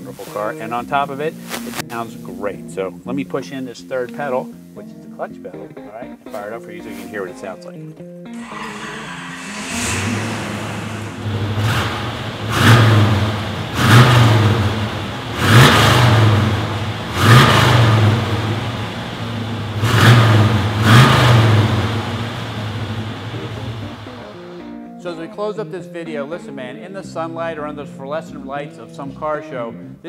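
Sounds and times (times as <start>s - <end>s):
car engine revving: 8.4s - 24.6s.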